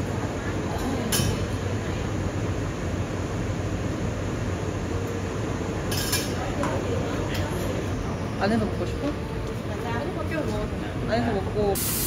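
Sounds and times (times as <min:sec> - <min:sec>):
hiss: 0:11.8 - 0:12.0.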